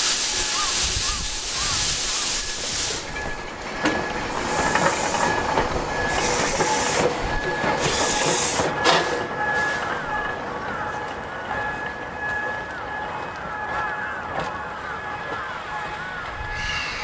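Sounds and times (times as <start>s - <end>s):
steam hissing in bursts: 0.0s - 9.8s, 16.5s - 17.0s
train wheels clicking on rails: 0.0s - 17.0s.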